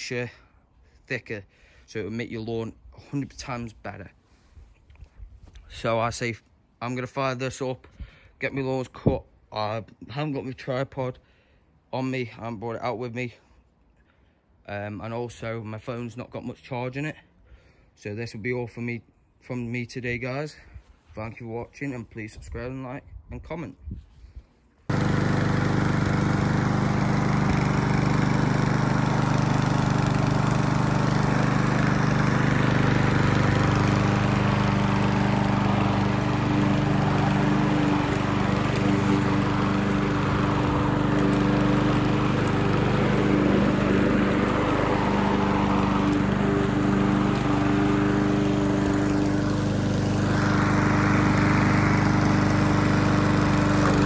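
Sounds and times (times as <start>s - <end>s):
lawnmower engine cutting grass: 24.9s - 54.0s.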